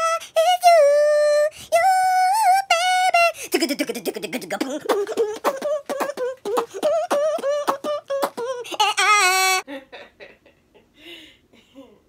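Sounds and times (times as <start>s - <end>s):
high voice singing syllables: 0.0s - 9.6s.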